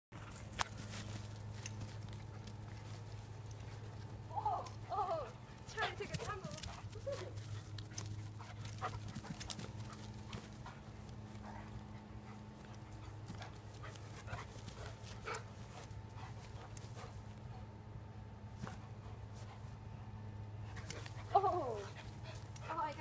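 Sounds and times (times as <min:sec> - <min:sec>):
dog paws thudding on grass: 0:00.2 - 0:17.4.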